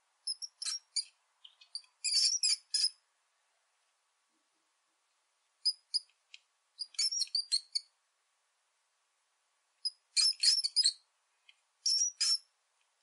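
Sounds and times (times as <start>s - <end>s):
rat squeaking: 0.2s - 3.0s, 5.6s - 6.1s, 6.8s - 7.9s, 9.8s - 11.0s, 11.8s - 12.5s.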